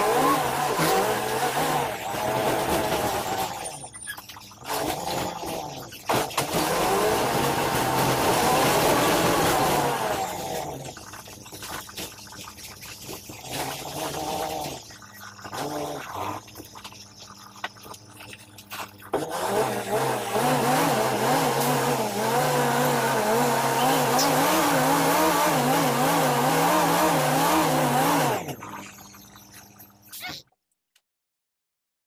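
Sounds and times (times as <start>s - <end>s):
bus engine running: 19.5s - 28.6s.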